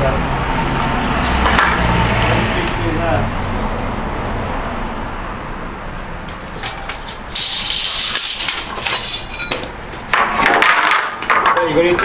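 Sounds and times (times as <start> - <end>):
tools and boards clattering: 0.7 - 1.9, 6.3 - 12.0
hissing scrape on concrete: 6.4 - 9.4.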